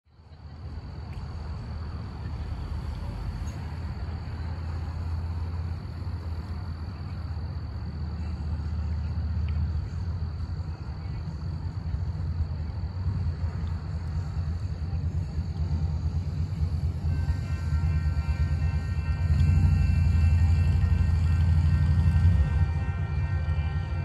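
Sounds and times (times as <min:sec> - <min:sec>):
steady low rumble: 0:00.1 - 0:24.0
thin high drone: 0:14.1 - 0:24.0.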